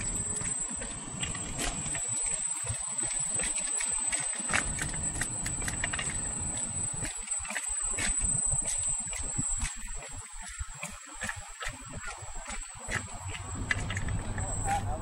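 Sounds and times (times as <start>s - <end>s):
high-pitched whine: 0.0s - 15.0s
small ticks: 0.1s - 14.4s
wind buffeting microphone: 4.5s - 15.0s.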